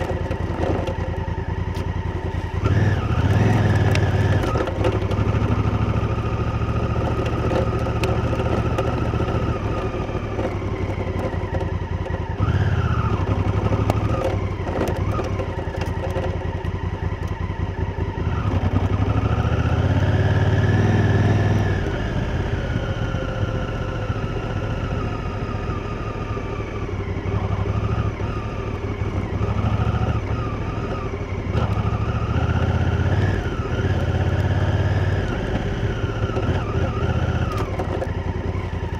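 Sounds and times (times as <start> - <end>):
clicks and clatter: 0.0 - 1.2, 7.0 - 12.2, 13.6 - 17.4, 36.3 - 38.2
motorcycle engine revving: 0.0 - 38.9.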